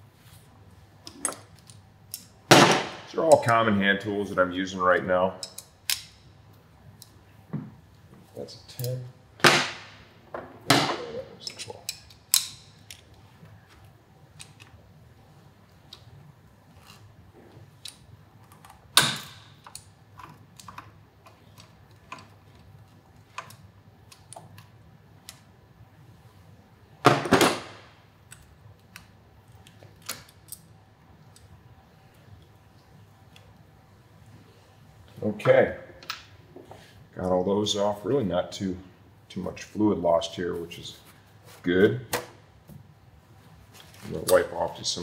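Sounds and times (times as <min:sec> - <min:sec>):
hand tools clicking and clinking: 0:10.9 - 0:13.0.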